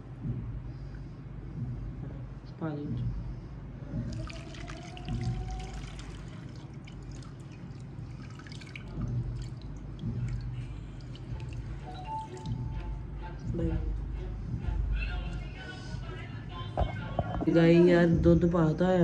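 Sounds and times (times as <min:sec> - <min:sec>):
background music: 0:03.8 - 0:19.0
liquid pouring and splashing: 0:04.0 - 0:12.8.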